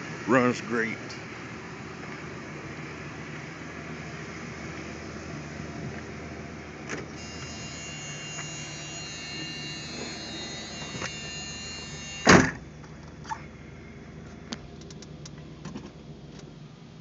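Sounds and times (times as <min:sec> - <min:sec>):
high steady buzz: 0:07.1 - 0:12.7
car door slamming: 0:12.3 - 0:12.6.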